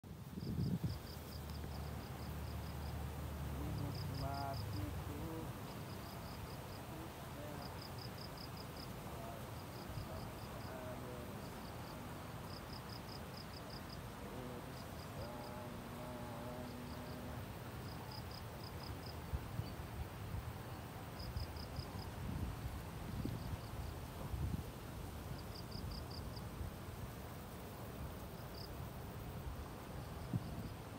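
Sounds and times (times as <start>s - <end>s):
low outdoor background: 0.0s - 30.9s
insect chirping: 0.1s - 30.9s.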